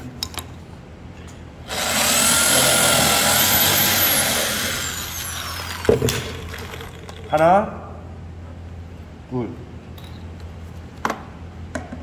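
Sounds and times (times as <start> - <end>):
electric drill drilling into wood: 1.7 - 6.4.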